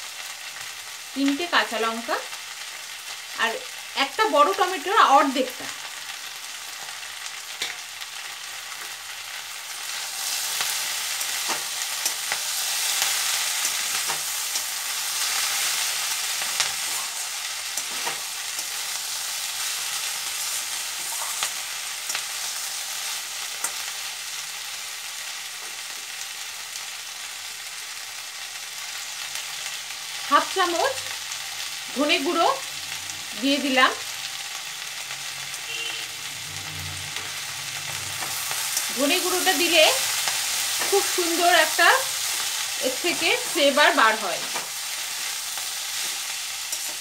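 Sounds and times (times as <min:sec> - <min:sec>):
vegetables sizzling in oil: 0:00.0 - 0:47.0
spatula scraping pan: 0:10.2 - 0:18.8, 0:20.3 - 0:22.2.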